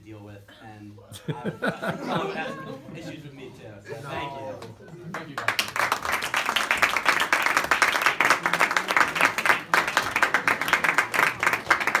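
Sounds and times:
audience clapping: 4.5 - 12.0.

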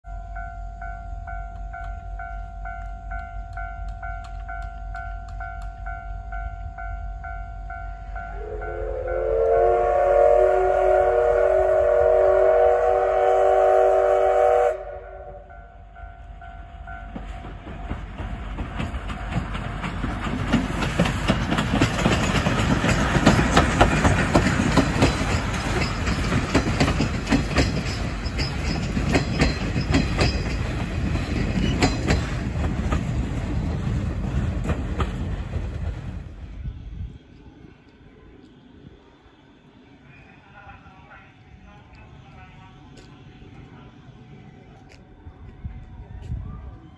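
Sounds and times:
train rumbling past: 0.1 - 46.9
steam whistle: 8.3 - 15.7
wheels clattering over rail joints: 17.1 - 36.2.

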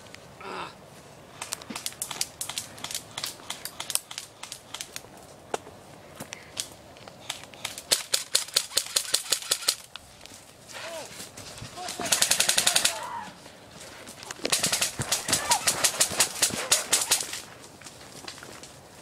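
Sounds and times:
airsoft rifles firing: 7.6 - 9.9, 11.8 - 13.1, 14.5 - 17.4.

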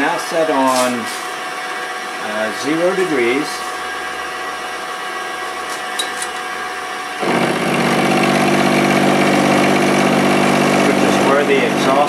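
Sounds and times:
milling machine spindle running: 0.0 - 12.0
end mill cutting metal: 2.6 - 12.0.

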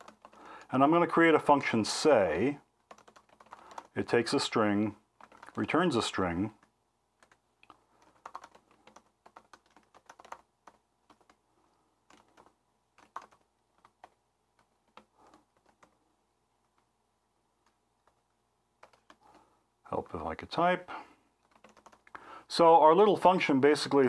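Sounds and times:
keyboard typing: 0.0 - 0.9, 2.8 - 4.2, 5.1 - 16.9, 17.6 - 19.5, 21.4 - 22.2.

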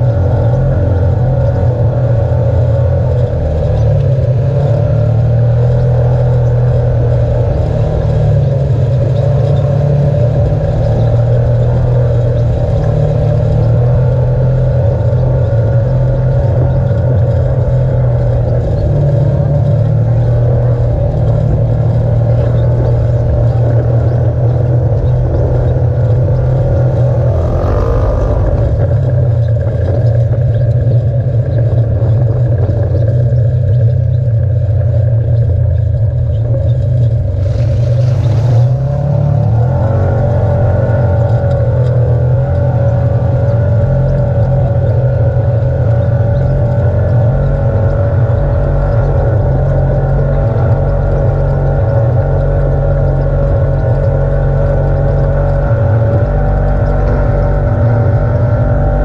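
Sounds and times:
vehicle engine drone: 0.0 - 59.0.

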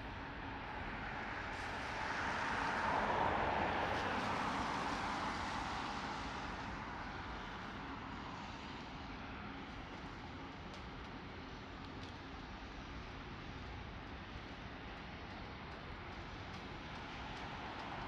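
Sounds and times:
car tyres hissing on wet road: 0.7 - 9.4.

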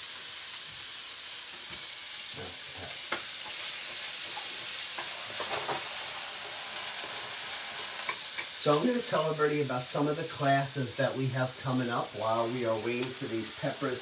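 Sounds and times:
vegetables sizzling in a frying pan: 0.0 - 14.0.

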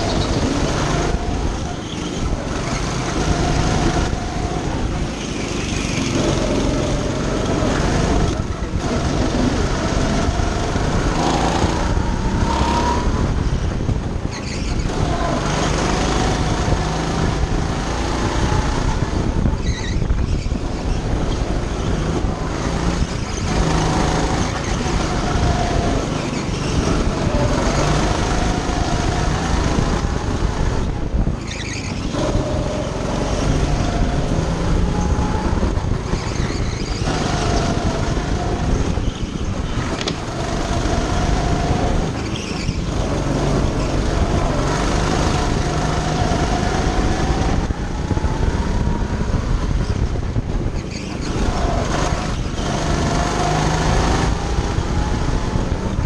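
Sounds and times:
go-kart engine revving: 0.0 - 56.0
steady rush of noise: 0.0 - 56.0.

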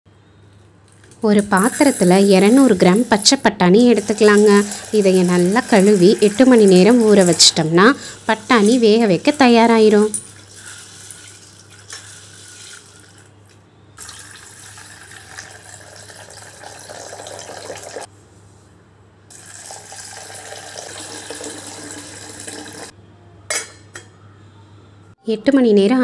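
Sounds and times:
tap water pouring into steel bowl: 10.2 - 13.3, 14.0 - 18.1, 19.3 - 22.9.

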